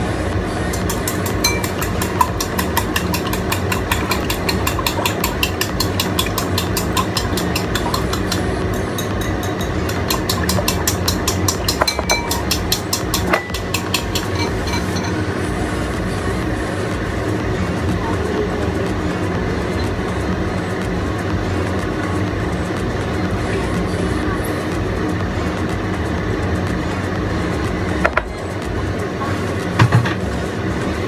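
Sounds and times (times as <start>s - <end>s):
chopsticks whisking in a bowl: 0.7s - 15.0s.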